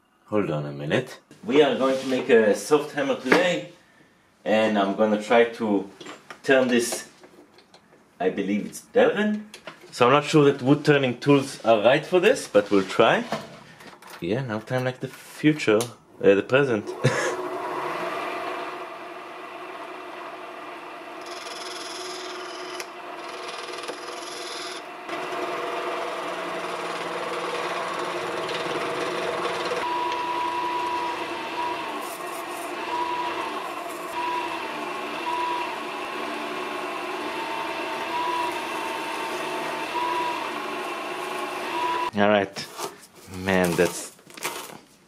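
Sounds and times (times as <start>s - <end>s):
lathe running: 16.9s - 42.1s.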